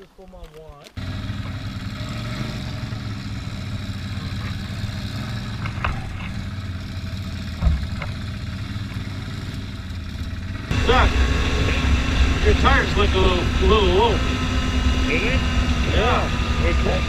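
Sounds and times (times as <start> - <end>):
atv engine running: 0.8 - 17.0
loud thump: 7.6 - 8.2.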